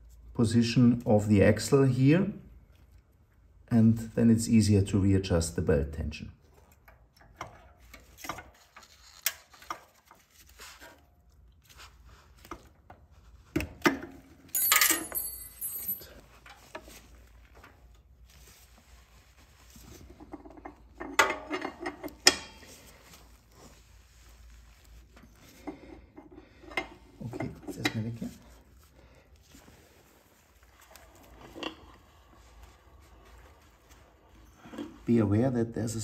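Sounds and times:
wrench clinking on metal: 14.6 - 16.2.

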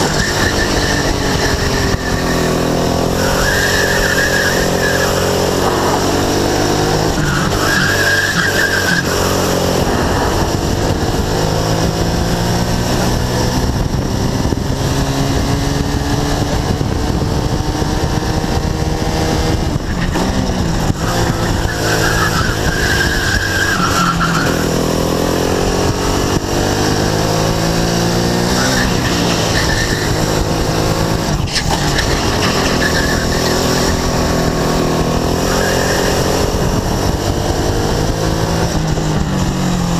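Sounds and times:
kart engine accelerating: 0.0 - 39.9
tyres squealing: 6.8 - 9.6.

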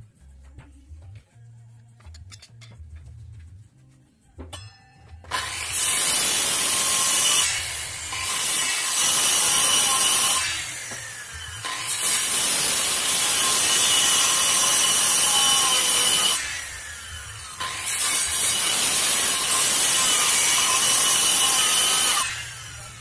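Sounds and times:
circular saw cutting wood: 5.3 - 23.0.

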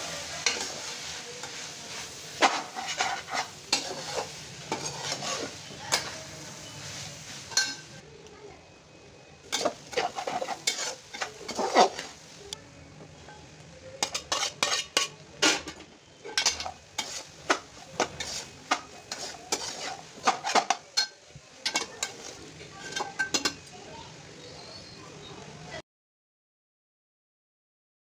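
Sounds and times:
metal spatula scraping a pot: 0.2 - 7.9, 9.5 - 12.2, 14.0 - 23.6.

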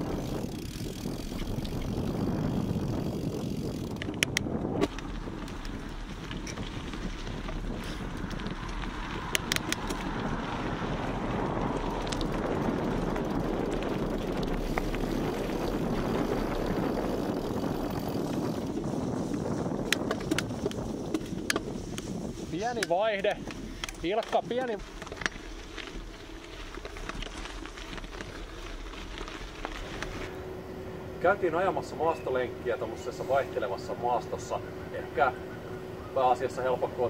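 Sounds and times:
wind on microphone: 0.0 - 24.1
bike clicks and rattles: 0.0 - 30.4
bike tyres rolling on gravel: 0.0 - 37.0.

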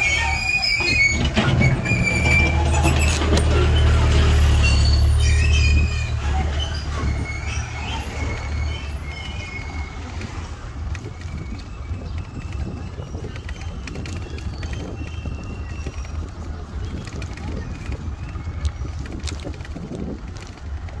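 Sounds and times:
short high squeaks: 0.0 - 16.4
wind rumbling on microphone: 0.0 - 21.0.

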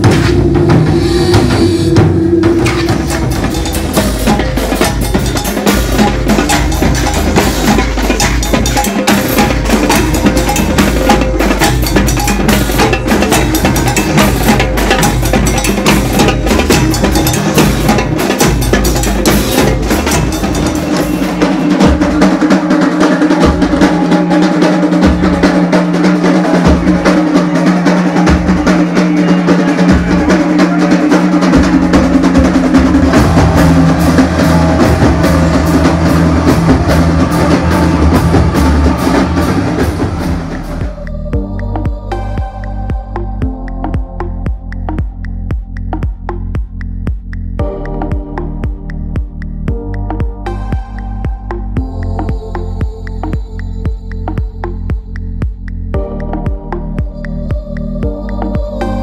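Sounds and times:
steady sustained tone: 0.0 - 5.6
drums played in dense rhythm: 0.0 - 59.0.

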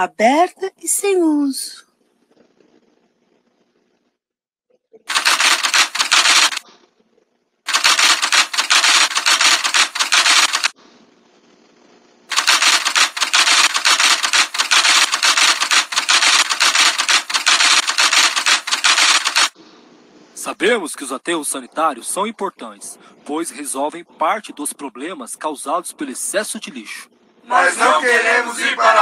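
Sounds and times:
typewriter key clatter: 5.1 - 6.6, 7.7 - 10.7, 12.3 - 19.6.

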